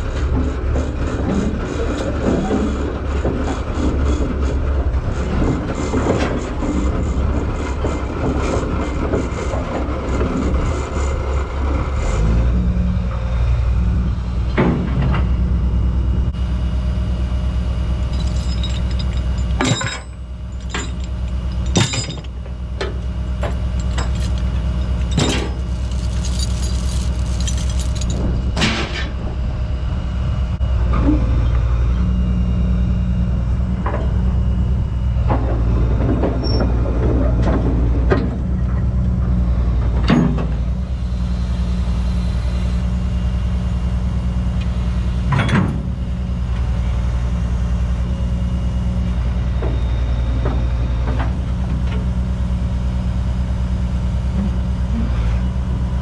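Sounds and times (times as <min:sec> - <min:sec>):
excavator diesel engine running: 0:00.0 - 0:56.0
sharp metal clanks: 0:18.0 - 0:22.4.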